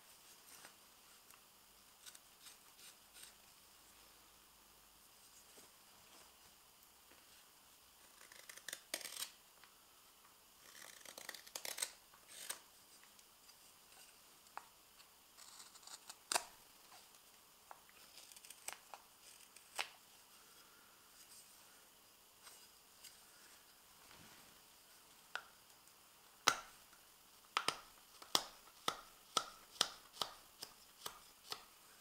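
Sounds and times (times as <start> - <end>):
knife carving wood shavings: 2.0 - 3.4, 8.1 - 9.4, 10.6 - 12.6, 15.3 - 16.5, 18.0 - 19.9, 28.1 - 31.6.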